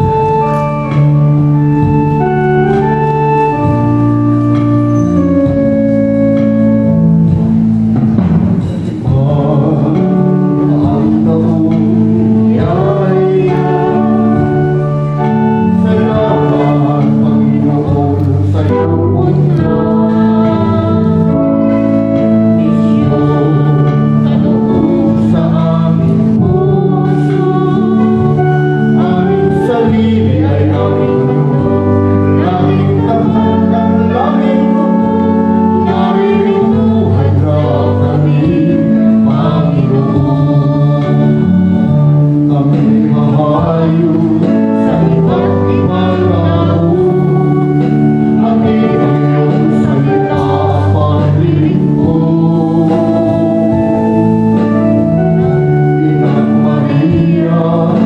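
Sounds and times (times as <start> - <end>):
sustained keyboard accompaniment: 0.0 - 58.0
voices singing a hymn: 0.0 - 58.0.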